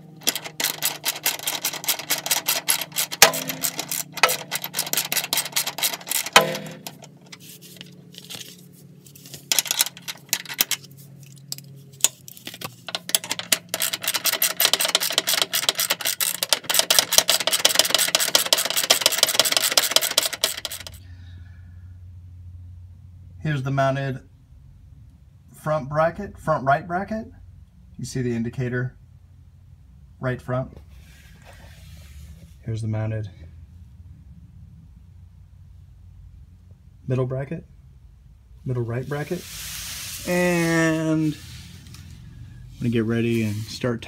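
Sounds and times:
socket ratchet clicking: 0:00.0 - 0:07.4, 0:09.5 - 0:10.8, 0:12.9 - 0:21.0.

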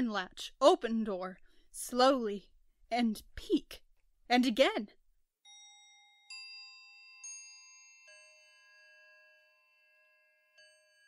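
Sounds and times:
soft bell-like chimes: 0:05.4 - 0:11.0.

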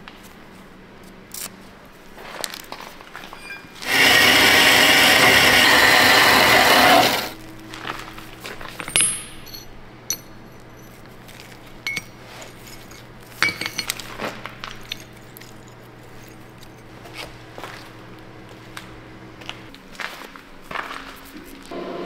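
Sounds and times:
low steady hum: 0:00.0 - 0:19.9
band saw cutting metal: 0:03.8 - 0:07.4
sharp metal clinks: 0:08.9 - 0:11.1, 0:11.8 - 0:14.1.

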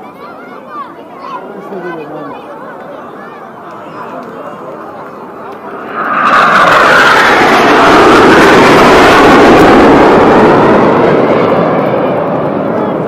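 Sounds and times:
jet roar passing: 0:01.4 - 0:13.0.

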